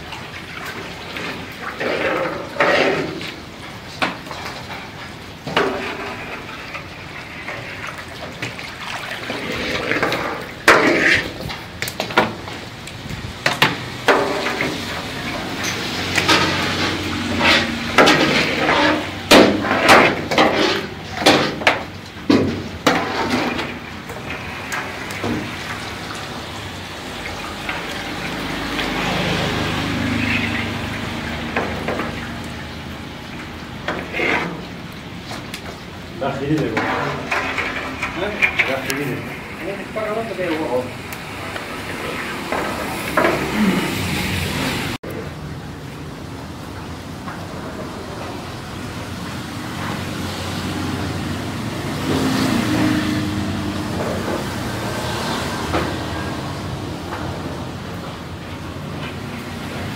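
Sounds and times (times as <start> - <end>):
ladle pouring and splashing sauce: 0.0 - 44.8.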